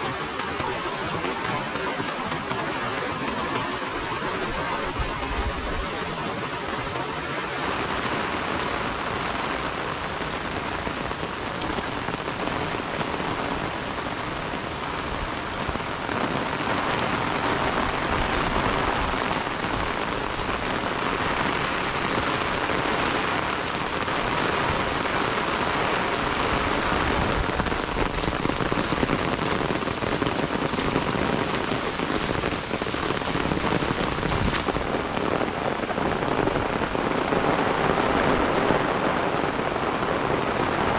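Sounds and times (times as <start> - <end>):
heavy rain falling: 0.0 - 40.9.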